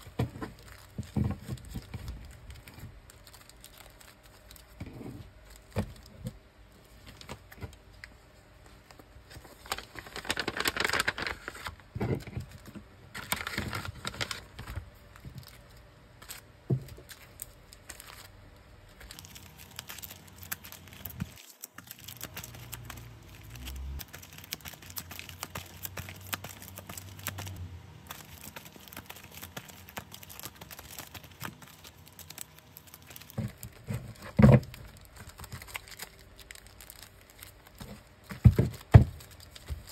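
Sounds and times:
plastic sleeves crinkling: 0:00.0 - 0:39.9.

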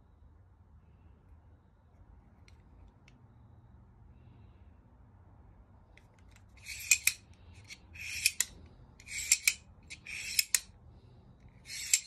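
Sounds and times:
knife blade locking clicks: 0:06.6 - 0:07.2, 0:08.0 - 0:10.7, 0:11.7 - 0:12.0
knife blade sliding with rasp: 0:06.6 - 0:10.7, 0:11.6 - 0:12.0.

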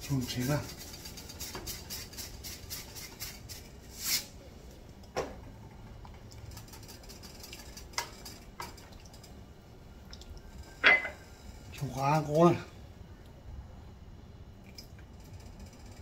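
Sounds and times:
spatula stirring in pot: 0:00.0 - 0:03.5
seasoning shaker rattling: 0:00.1 - 0:04.2, 0:06.4 - 0:09.3.

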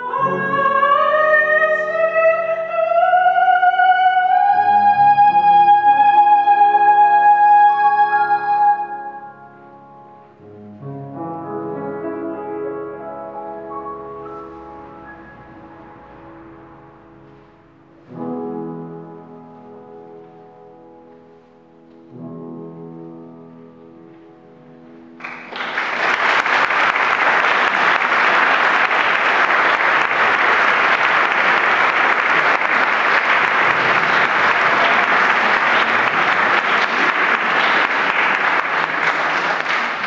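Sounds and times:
piano chord: 0:04.4 - 0:26.1
audience applause: 0:25.2 - 0:40.0.

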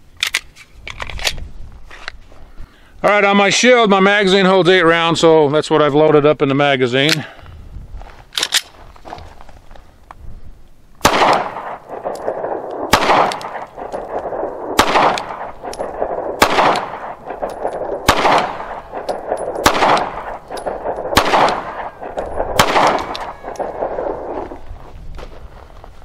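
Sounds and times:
pistol shots with ringing echo: 0:11.0 - 0:24.6.

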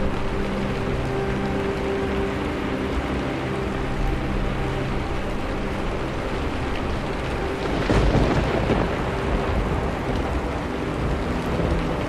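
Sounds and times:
steady rain: 0:00.0 - 0:12.0
thunder rumbling: 0:07.1 - 0:12.0.

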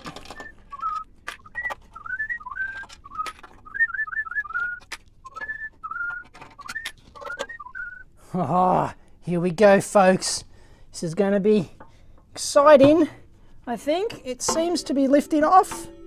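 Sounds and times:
man whistling a tune: 0:00.3 - 0:08.0
tools tapping on metal casing: 0:11.8 - 0:13.5, 0:14.1 - 0:16.0.

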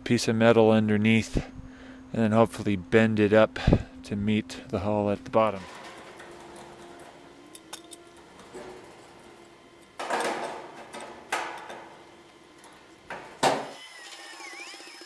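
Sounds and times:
hydraulic jack pumping: 0:05.6 - 0:15.0.

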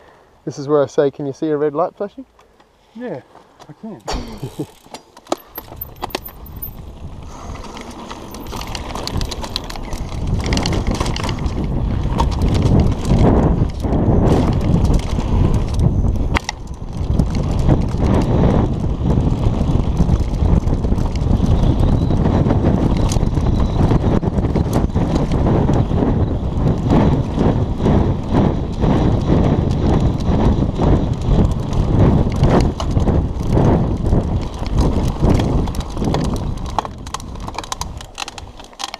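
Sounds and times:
bike rattling: 0:00.9 - 0:38.9
tyres crunching on dirt: 0:03.3 - 0:13.8
wind buffeting microphone: 0:05.4 - 0:38.9.

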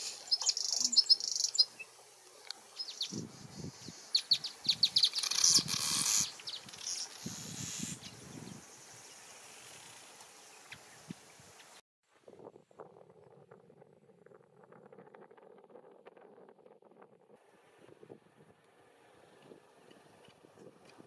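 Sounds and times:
buzzy bird chatter: 0:00.0 - 0:01.8, 0:02.8 - 0:08.7
high bird chirps: 0:00.0 - 0:01.9, 0:02.8 - 0:09.1.

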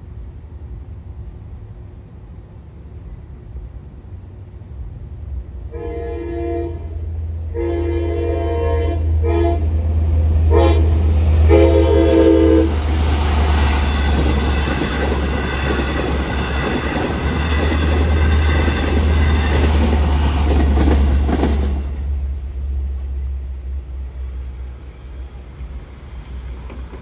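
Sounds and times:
low engine rumble: 0:00.0 - 0:27.0
wheels rumbling on rail: 0:00.0 - 0:27.0
train horn blasts: 0:05.7 - 0:09.8, 0:10.5 - 0:12.9.

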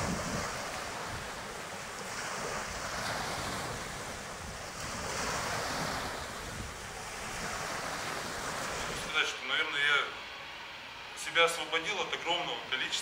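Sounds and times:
wind buffeting microphone: 0:00.0 - 0:09.2
sea waves washing: 0:00.0 - 0:13.0.

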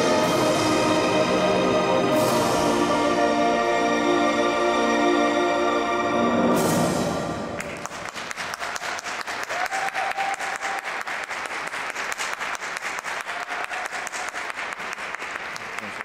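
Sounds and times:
program music: 0:00.0 - 0:07.7
audience applauding: 0:07.5 - 0:16.0.

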